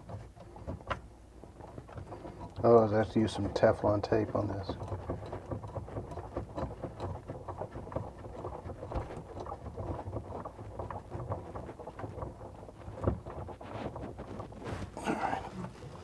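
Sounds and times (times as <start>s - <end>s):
tape rustling and clicking: 0.0s - 16.0s.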